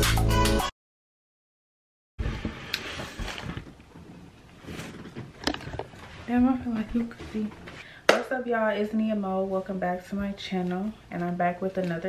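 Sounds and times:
background music: 0.0 - 0.7.

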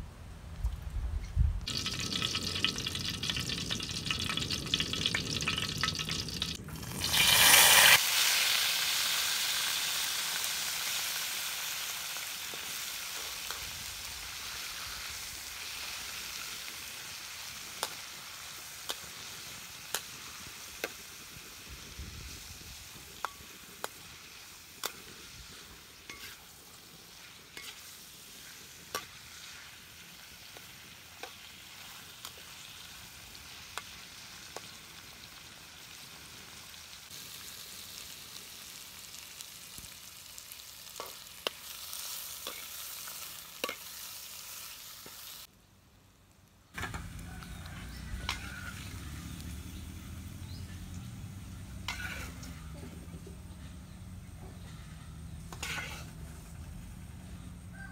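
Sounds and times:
mushrooms sizzling in a wok: 1.6 - 57.9
metal ladle scraping a pan: 26.0 - 29.7, 47.8 - 49.0, 51.8 - 52.8, 54.6 - 56.6.

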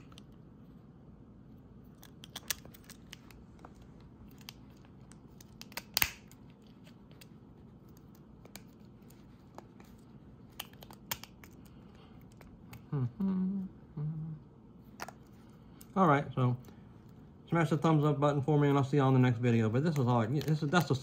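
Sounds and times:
sharp plastic snap: 5.3 - 6.4.

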